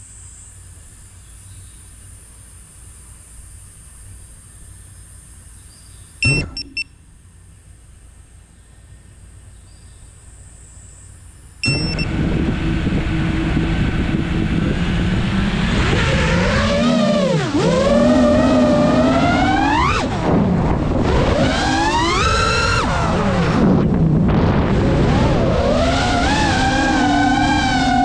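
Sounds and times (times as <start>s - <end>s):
drone motors buzzing whine: 6.2s - 6.9s, 11.0s - 28.0s
short beep: 6.2s - 7.0s, 11.6s - 12.1s
low rumble: 11.7s - 17.1s.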